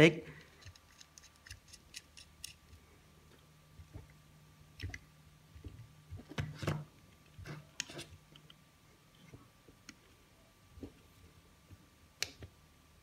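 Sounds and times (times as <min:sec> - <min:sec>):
faint steady hum: 0:00.0 - 0:13.0
small parts clicking and knocking: 0:00.4 - 0:04.1.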